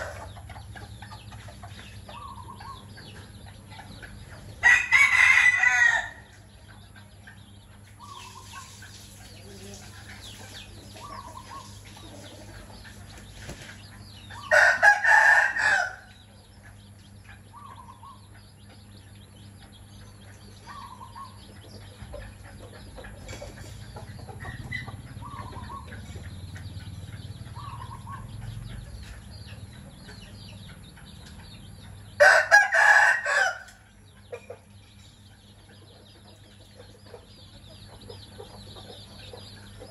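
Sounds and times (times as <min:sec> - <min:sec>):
rooster crowing: 0:04.6 - 0:06.3, 0:14.4 - 0:16.1, 0:32.2 - 0:33.8
hen clucking softly: 0:06.2 - 0:14.6, 0:16.0 - 0:32.0.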